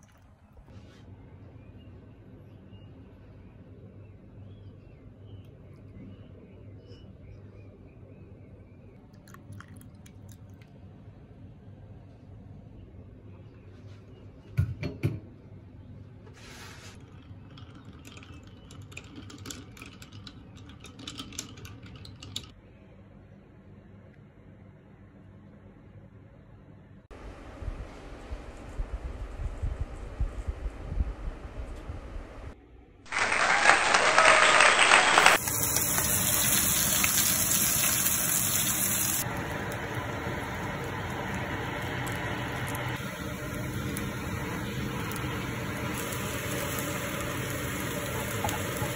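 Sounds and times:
applause: 33.1 - 35.6
fish sizzling in a pan: 35.4 - 48.9.

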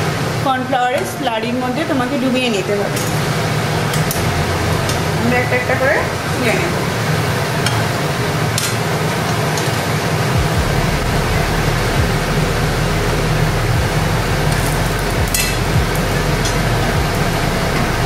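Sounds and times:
low hum: 0.0 - 18.0
food sizzling in oil: 2.1 - 10.4.

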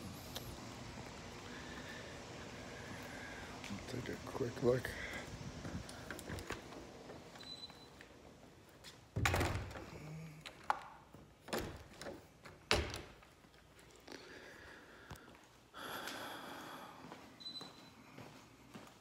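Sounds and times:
door shutting with a thunk: 9.2 - 9.9.

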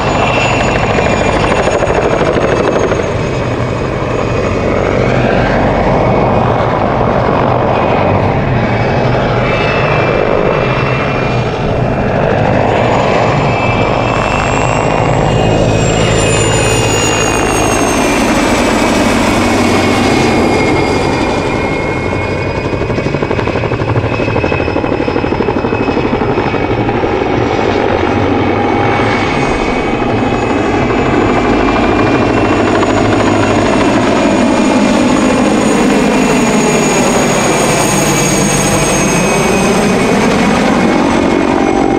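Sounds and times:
helicopter rotor noise: 0.0 - 41.9
helicopter turbine whine: 0.0 - 41.9.

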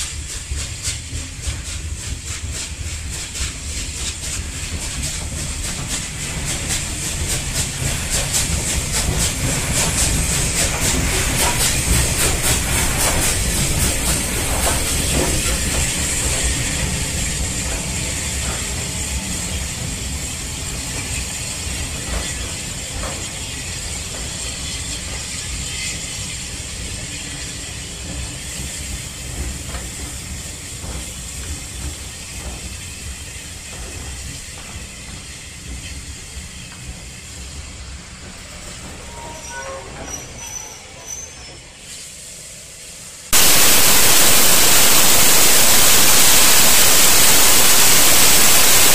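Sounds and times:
steam hissing: 0.0 - 21.8, 41.8 - 48.9
train wheels clicking over rail joints: 0.0 - 39.2
loud steam blowing from drain cocks: 0.1 - 20.4, 41.9 - 48.9.

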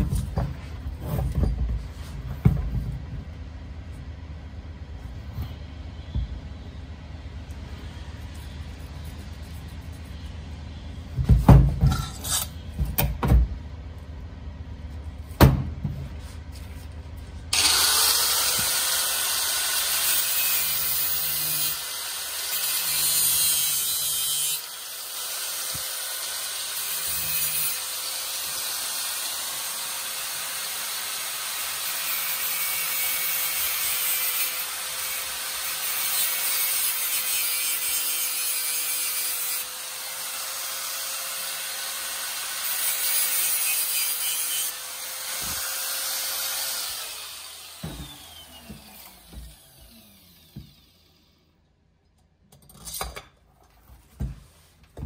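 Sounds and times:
angle grinder cutting metal: 17.5 - 51.3.

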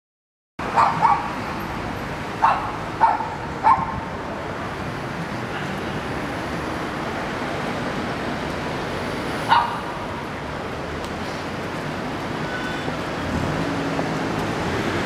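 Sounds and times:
city street noise: 0.6 - 15.0
dog barking: 0.7 - 1.3, 2.4 - 4.0, 9.5 - 9.9.

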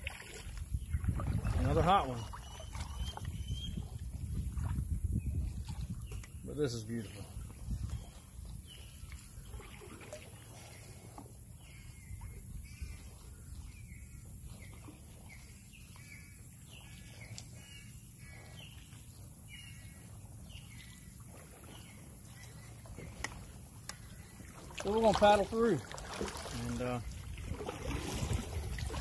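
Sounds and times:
bird calling: 1.6 - 4.1.

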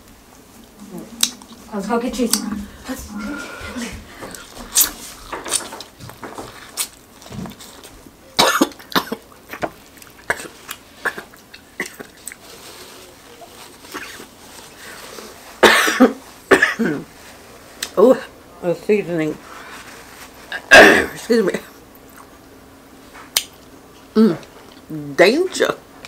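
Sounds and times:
woman coughing: 8.4 - 9.2, 15.6 - 17.0, 20.6 - 21.2
wet mouth and eating clicks: 23.3 - 23.7.

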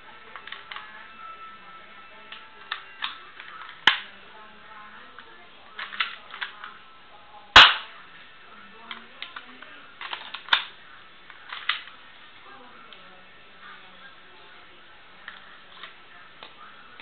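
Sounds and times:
plastic pistol clicks: 2.7 - 4.1, 7.6 - 7.9, 10.0 - 10.7
sharp loud snap: 7.6 - 7.9.

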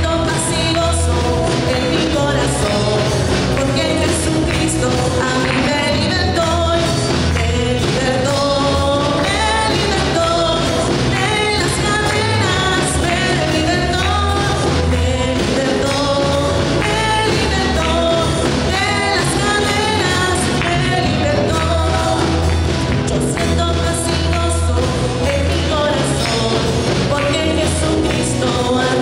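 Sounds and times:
band playing praise song: 0.0 - 29.0
person singing: 0.0 - 29.0
steady pulsing bass: 0.0 - 29.0.

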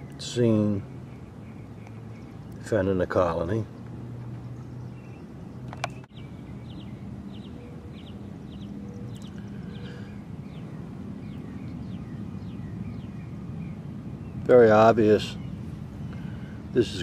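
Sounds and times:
bird chirping: 0.0 - 17.0
sharp click: 5.7 - 6.1.

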